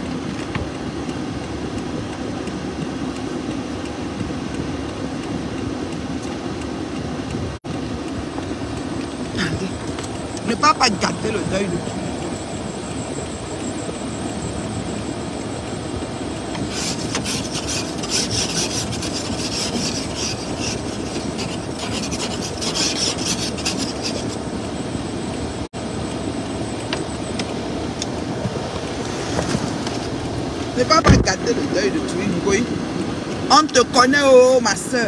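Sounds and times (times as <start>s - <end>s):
steady low rumble: 0.0s - 35.0s
scratchy rubbing: 16.6s - 24.4s.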